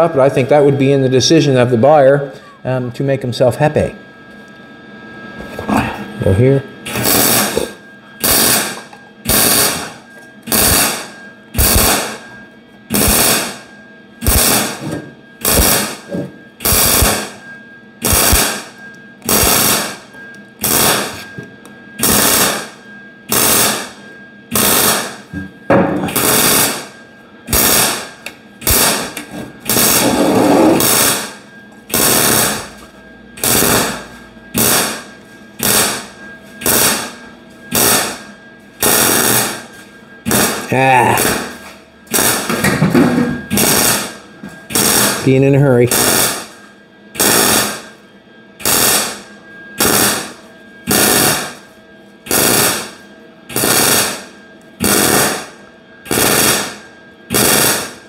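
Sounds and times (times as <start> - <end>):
welding arc crackle: 6.9 - 12.2, 12.9 - 14.8, 15.4 - 17.4, 18.0 - 21.2, 22.0 - 25.3, 26.1 - 32.8, 33.4 - 39.7, 40.3 - 41.5, 42.1 - 42.7, 43.5 - 46.6, 47.2 - 48.0, 48.6 - 51.7, 52.3 - 58.0.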